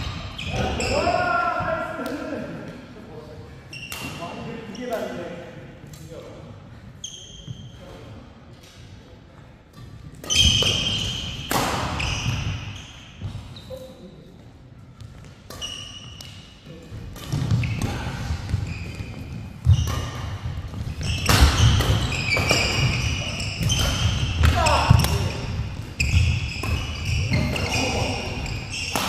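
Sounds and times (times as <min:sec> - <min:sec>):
shoes squeaking on court: 0:00.0 - 0:01.1, 0:07.0 - 0:08.0, 0:09.8 - 0:14.2, 0:14.9 - 0:16.5, 0:17.2 - 0:29.0
racket hitting shuttlecock: 0:09.7 - 0:13.4, 0:17.1 - 0:29.0.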